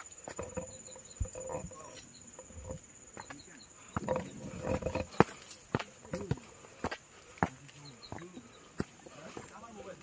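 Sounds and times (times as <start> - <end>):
high-pitched insect buzz: 0.0 - 5.6
footsteps on dirt trail: 0.0 - 10.0.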